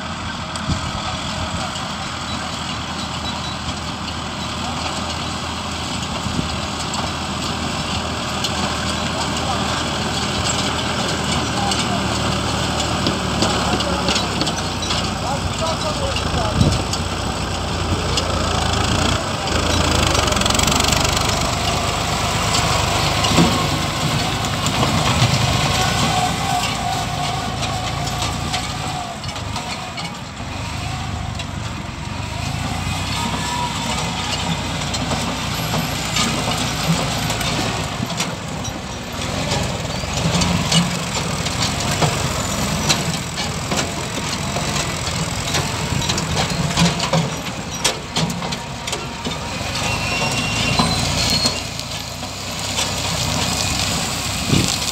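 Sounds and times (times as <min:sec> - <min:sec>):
tractor engines running: 0:00.0 - 0:54.9
machinery knocks and clicks: 0:08.4 - 0:30.4, 0:34.4 - 0:53.9.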